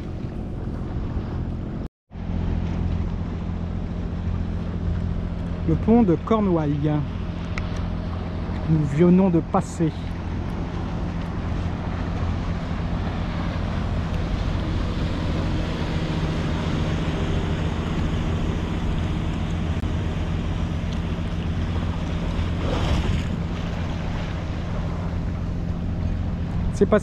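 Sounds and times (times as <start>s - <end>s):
diesel engine droning: 0.0s - 27.0s
water rushing past boat: 0.0s - 27.0s
wind buffeting microphone: 9.4s - 27.0s.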